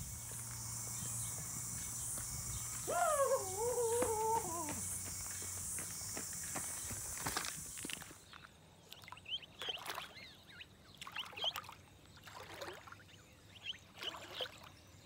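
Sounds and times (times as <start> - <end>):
swans whistling calls: 0.0 - 4.8
outdoor hiss: 0.0 - 8.4.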